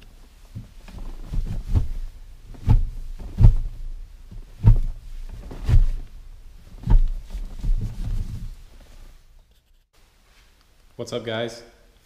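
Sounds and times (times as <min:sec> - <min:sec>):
dull low thumps: 0:00.0 - 0:09.4.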